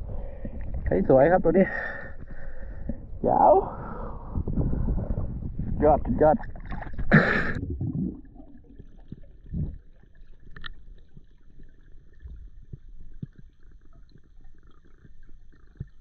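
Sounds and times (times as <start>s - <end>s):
muffled underwater rumble: 0.0s - 16.0s
water splashing: 5.8s - 12.1s.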